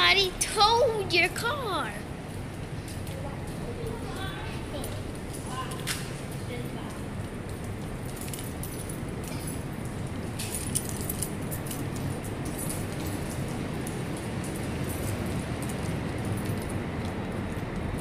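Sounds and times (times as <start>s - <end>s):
keys jangling: 4.1s - 18.0s.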